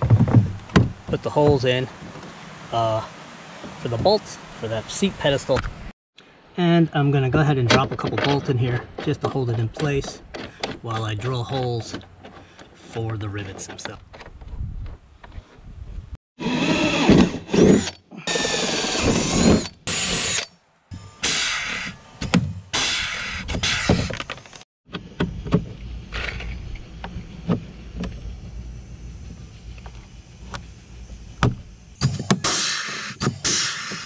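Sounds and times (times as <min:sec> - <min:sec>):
sharp clicks and knocks: 0:07.6 - 0:15.4
cordless drill boring: 0:16.4 - 0:24.3
pneumatic rivet gun burst: 0:21.2 - 0:24.6, 0:32.0 - 0:34.0.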